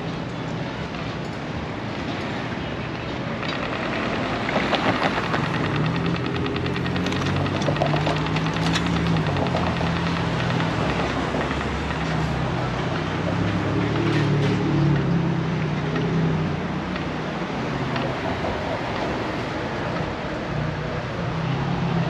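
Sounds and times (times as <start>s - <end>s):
street noise: 0.0s - 22.0s
fast rattle: 3.5s - 12.6s
motor engine running: 3.5s - 12.8s.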